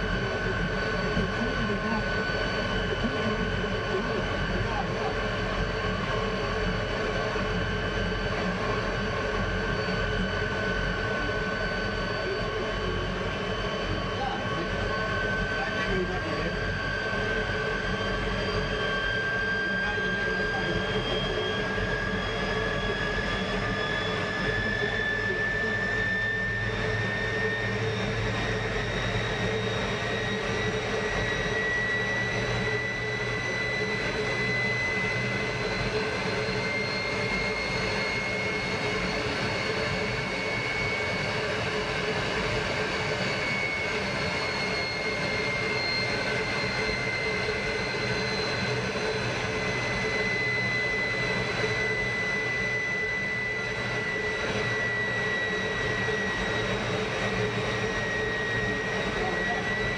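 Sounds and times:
jet engine roar with high whine: 0.0s - 59.9s.

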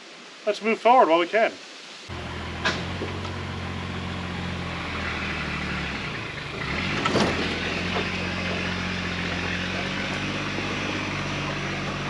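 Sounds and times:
truck engine running under load: 2.1s - 12.0s.

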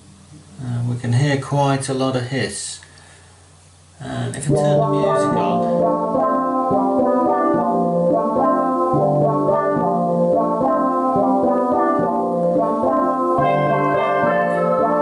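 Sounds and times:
amplifier hiss: 0.0s - 15.0s
synthesizer music through speaker: 4.5s - 15.0s.

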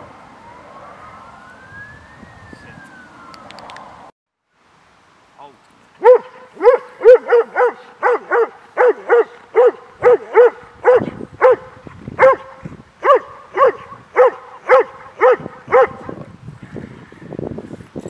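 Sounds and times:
dog barking: 6.0s - 16.2s.

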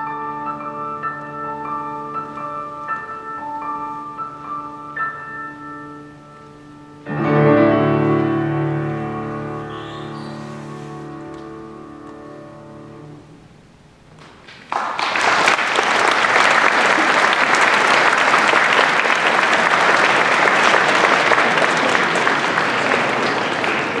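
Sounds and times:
audience applause: 14.2s - 24.0s.

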